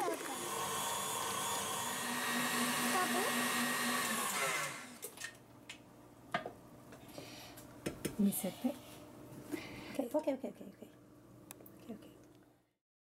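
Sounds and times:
stand mixer whisking: 0.0 - 5.0.

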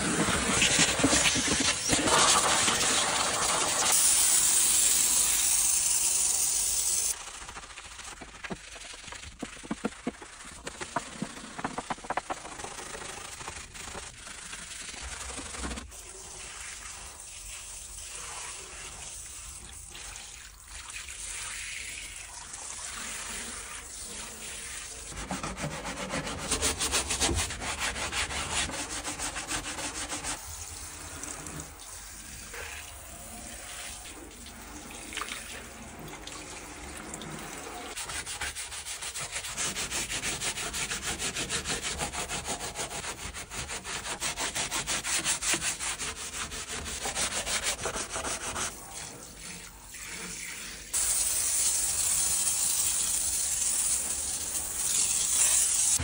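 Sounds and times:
brush scrubbing sheet metal: 0.0 - 4.0, 7.2 - 15.9, 24.2 - 30.5, 37.9 - 51.2
water spraying: 0.0 - 15.6, 44.6 - 56.0.

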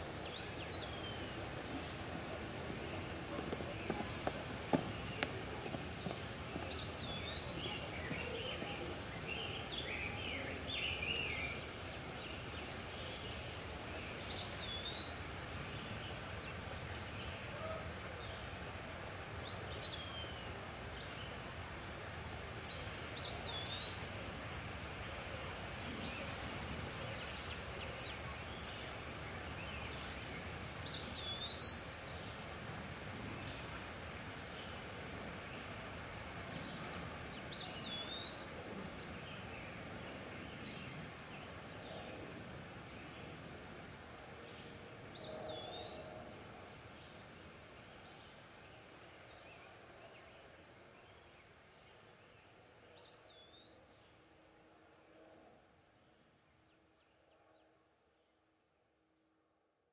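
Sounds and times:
steady background noise: 0.0 - 57.6
birds chattering: 0.2 - 15.3.

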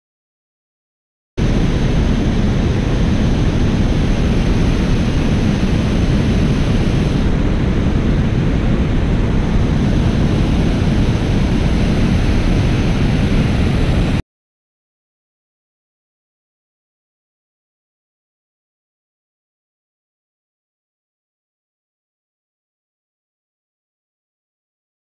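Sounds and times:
water rushing over dam spillway: 1.4 - 14.2.

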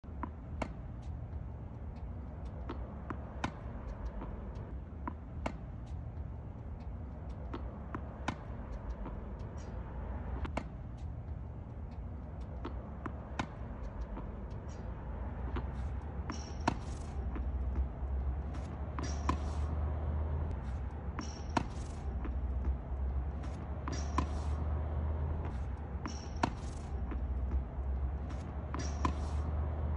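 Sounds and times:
steady low rumble: 0.0 - 29.9
tennis ball struck with racket: 0.1 - 1.2, 2.4 - 5.8, 7.3 - 10.8, 12.4 - 29.9
ball bouncing on hard court: 2.4 - 6.0, 7.2 - 9.7, 12.4 - 14.8, 15.4 - 29.9.

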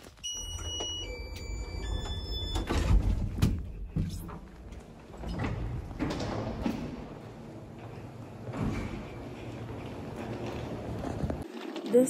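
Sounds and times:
elevator chime: 0.2 - 3.9
elevator doors clunking: 0.2 - 11.4.

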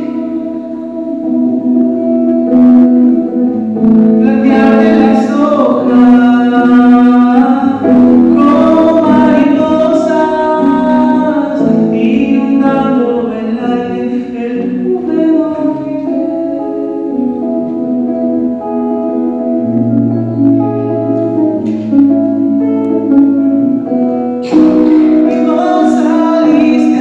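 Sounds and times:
man singing: 0.0 - 1.4, 3.8 - 17.7, 24.4 - 27.0
acoustic guitar: 0.0 - 27.0.

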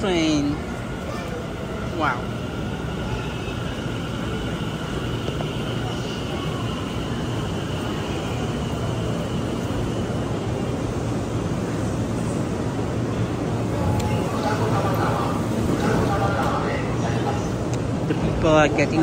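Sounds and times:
train low rumble: 0.0 - 19.0.

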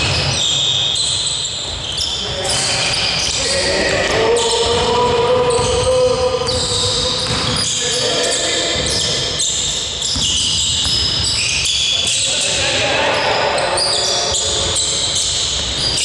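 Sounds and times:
sneakers squeaking on court floor: 0.0 - 16.0
basketball bouncing: 3.2 - 7.9, 10.0 - 12.3.

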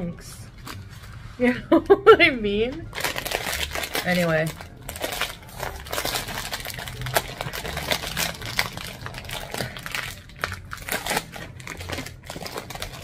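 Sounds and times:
chip bag crinkling: 2.9 - 13.0.

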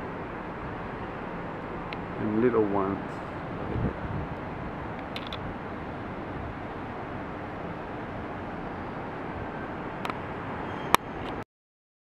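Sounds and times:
hum of distant traffic: 0.0 - 11.4
sharp click: 5.0 - 5.4.

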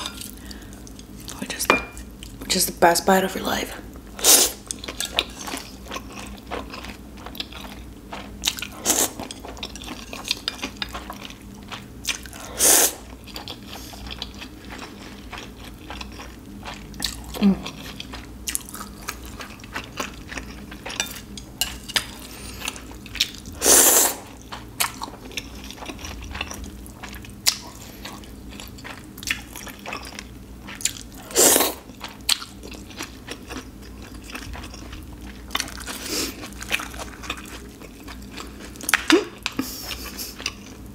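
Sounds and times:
chewing with wet mouth clicks: 24.4 - 31.2.

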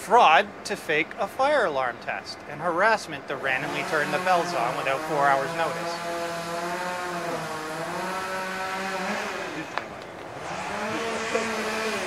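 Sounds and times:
vehicle engine running: 3.4 - 12.0.

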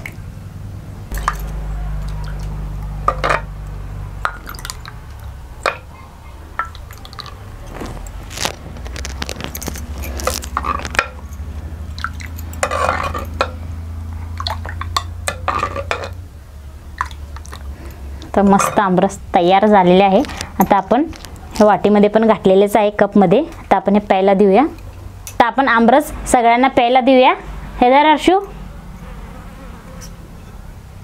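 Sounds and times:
ladle clinking against clay pot: 1.1 - 3.6, 4.2 - 8.2, 9.0 - 13.7, 14.3 - 16.2.

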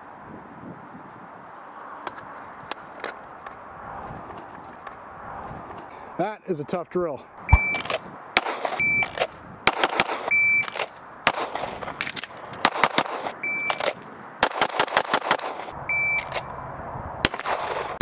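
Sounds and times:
shot timer beeps: 7.5 - 7.8, 8.8 - 9.1, 10.3 - 10.7, 13.4 - 13.8, 15.9 - 16.3
pistol shots: 7.5 - 16.4, 17.2 - 18.0.

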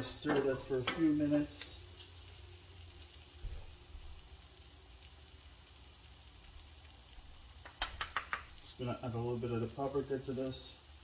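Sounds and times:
sauce sizzling in a pan: 0.0 - 11.0.

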